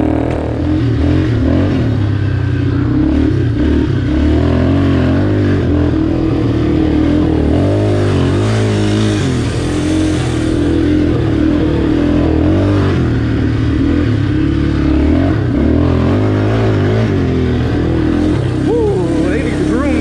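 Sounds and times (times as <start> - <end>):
quad bike engine revving: 0.0 - 20.0.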